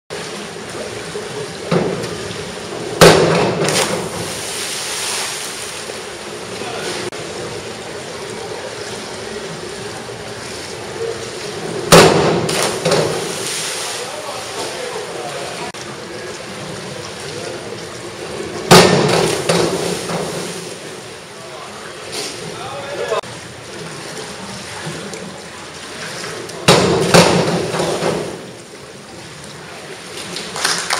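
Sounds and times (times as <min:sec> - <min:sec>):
springboard thud: 0:03.0 - 0:04.4, 0:11.9 - 0:13.4, 0:18.7 - 0:20.7, 0:26.6 - 0:28.4
spray falling into water: 0:03.0 - 0:05.6, 0:18.7 - 0:20.7
body splashing into pool: 0:03.0 - 0:05.8, 0:11.9 - 0:14.1.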